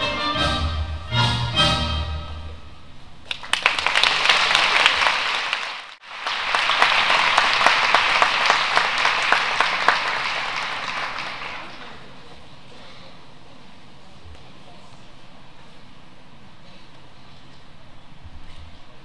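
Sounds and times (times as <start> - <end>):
audience applauding: 3.3 - 12.1.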